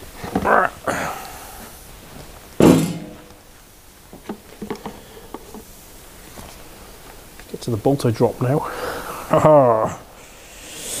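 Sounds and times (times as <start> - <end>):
loud thunk: 2.6 - 3.3
motorcycle parts knocking and rattling: 2.6 - 3.4, 4.2 - 5.6.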